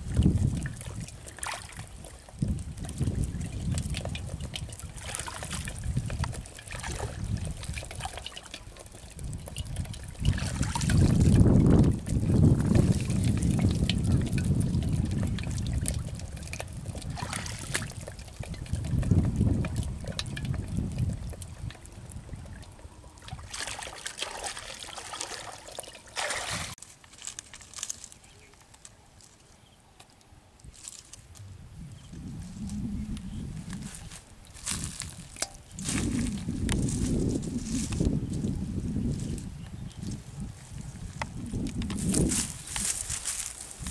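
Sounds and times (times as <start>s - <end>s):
water trickling and splashing: 0.0s - 28.2s, 32.1s - 43.9s.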